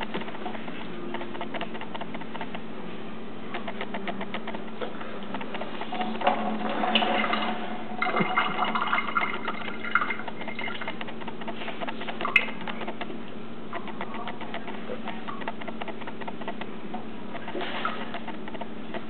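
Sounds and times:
low hum: 0.0 - 19.0
water trickling into a steel sink: 5.9 - 11.0.

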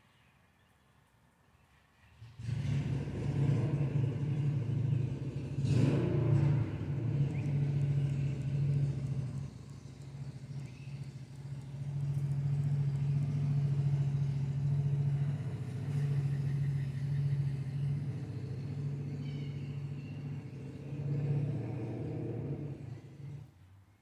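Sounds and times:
motorcycle engine revving: 2.2 - 23.5.

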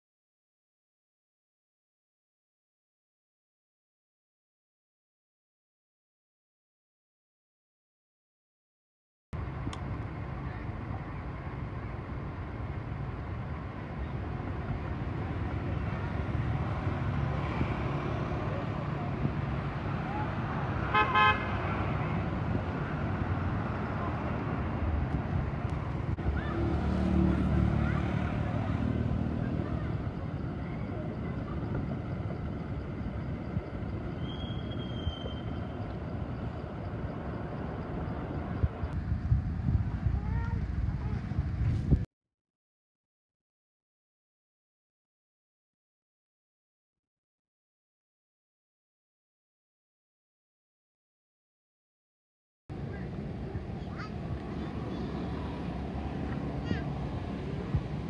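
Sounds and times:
outdoor background noise: 9.4 - 42.1, 52.7 - 58.0
vehicle low rumble: 9.4 - 42.1, 52.7 - 58.0
thin falling whistle tone: 34.2 - 35.6.

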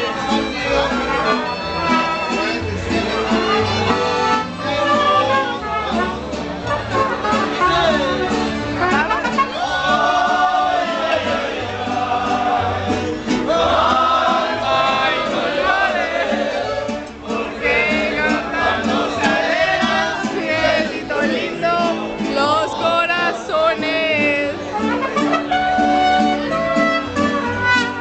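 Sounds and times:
people singing: 0.0 - 25.0
trumpet: 0.6 - 11.0, 24.6 - 28.0.

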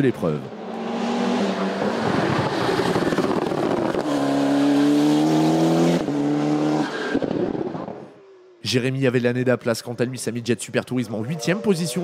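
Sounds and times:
race car engines at full throttle: 0.0 - 8.6
car rushing past: 0.4 - 8.6.

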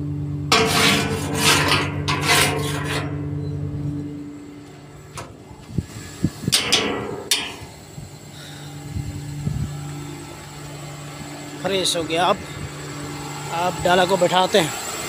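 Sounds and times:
sharp knocks and clanks: 0.5 - 5.8, 6.5 - 7.8
diesel truck engine idling: 7.2 - 15.0.

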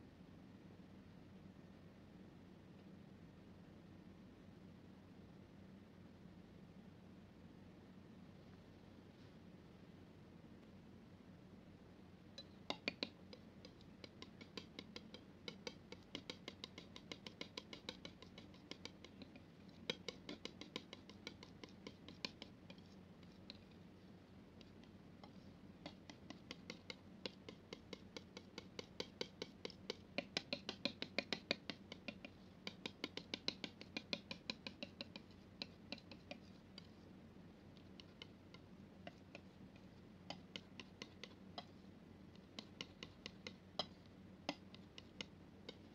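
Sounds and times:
palette knife clicking in paint: 12.4 - 37.0, 37.6 - 45.9.

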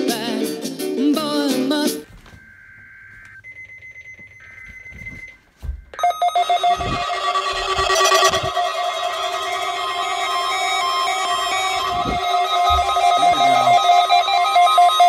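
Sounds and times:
music: 0.0 - 2.1, 6.8 - 15.0
faint high electronic tones: 2.1 - 15.0
weather radio alarm: 2.1 - 15.0.

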